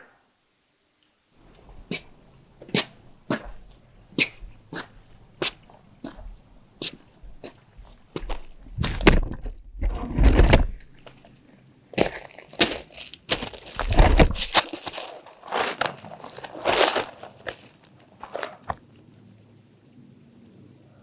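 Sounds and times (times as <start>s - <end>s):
crickets trilling: 1.3s - 21.0s
footsteps: 1.5s - 11.3s, 11.9s - 18.8s.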